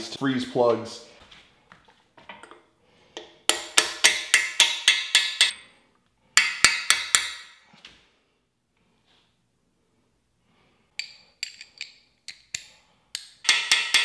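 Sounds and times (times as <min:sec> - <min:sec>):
hammer striking metal: 0:03.5 - 0:05.6, 0:06.4 - 0:07.6, 0:13.2 - 0:14.0.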